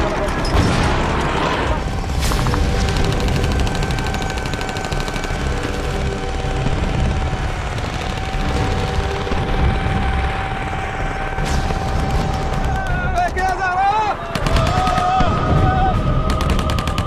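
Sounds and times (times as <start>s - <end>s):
rapid automatic rifle fire: 2.4s - 12.9s, 14.3s - 17.0s.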